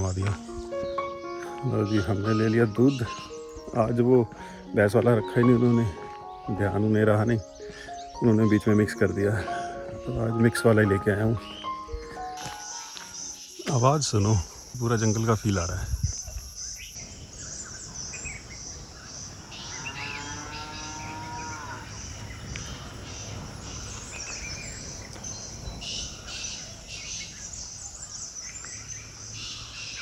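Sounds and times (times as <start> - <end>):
bird chirps: 0.0 - 30.0
insects trilling: 0.0 - 30.0
low wind noise: 13.9 - 30.0
cow mooing: 19.4 - 22.0.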